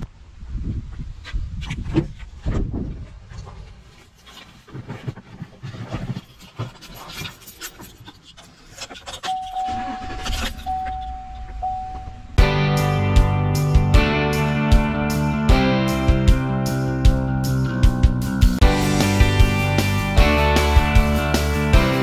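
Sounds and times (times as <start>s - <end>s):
rustling and clunks in truck cab: 1.2s - 12.2s
electronic warning tone: 9.2s - 12.4s
guitar music: 12.4s - 22.0s.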